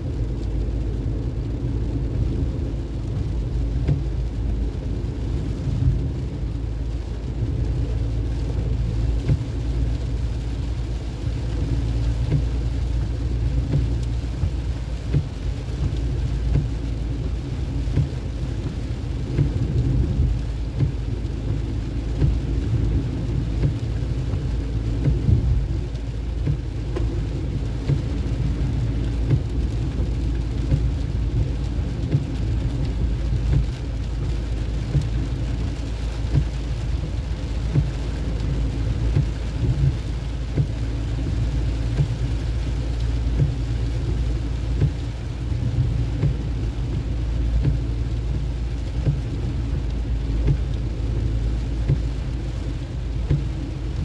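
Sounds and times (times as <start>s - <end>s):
vehicle rumble on road: 0.0s - 54.0s.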